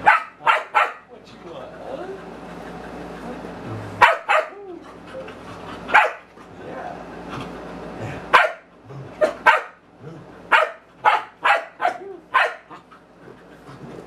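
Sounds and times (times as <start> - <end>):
dog barking: 0.0 - 1.0, 4.0 - 4.6, 5.9 - 6.3, 8.3 - 9.8, 10.5 - 12.8.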